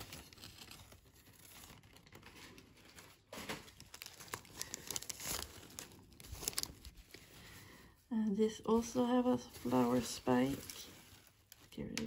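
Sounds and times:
paper tearing: 0.0 - 2.6
paper crinkling and rustling: 0.0 - 12.0.

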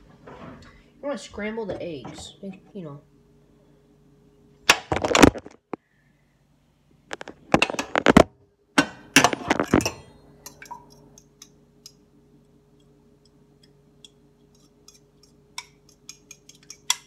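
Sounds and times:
fork beating eggs in a bowl: 12.7 - 17.0.

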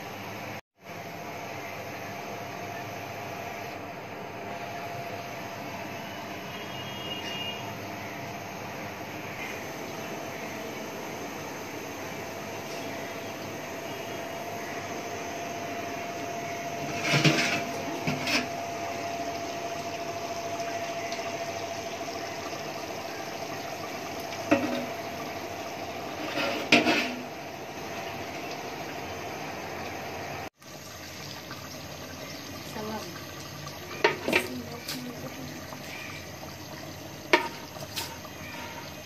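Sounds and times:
gas burner hissing: 5.0 - 39.0
metal clanks on pot: 16.8 - 18.5, 24.5 - 25.0, 26.2 - 27.3, 34.0 - 35.0, 37.3 - 38.9.

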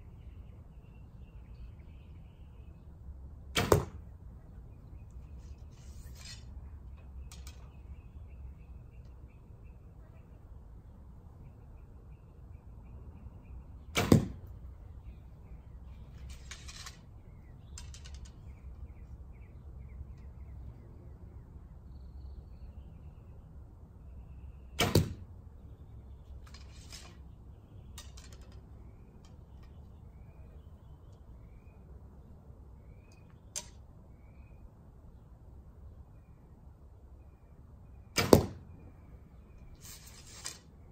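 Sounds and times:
rustling of bow handling: 5.1 - 7.7, 15.9 - 17.2, 26.3 - 27.3, 39.7 - 40.8.

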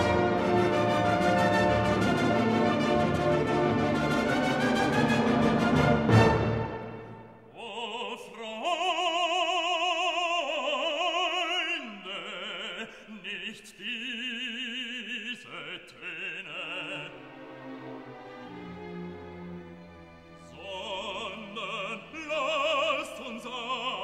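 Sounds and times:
orchestra playing: 0.0 - 7.5, 17.0 - 22.3
operatic voice singing: 7.5 - 17.5, 20.4 - 24.0.

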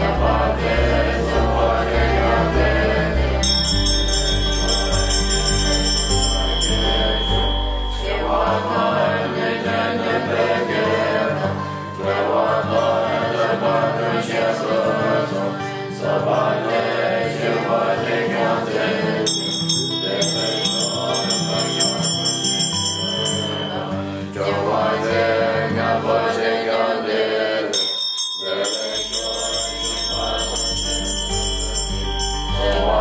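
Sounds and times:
ritual bell ringing rapidly: 0.0 - 13.5, 18.6 - 25.2, 27.7 - 33.0.

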